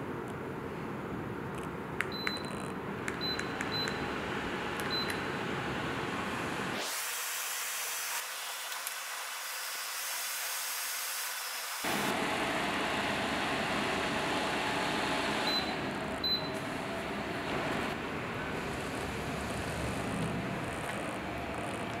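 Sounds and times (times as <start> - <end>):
air cooler fan running: 0.0 - 6.9, 11.8 - 22.0.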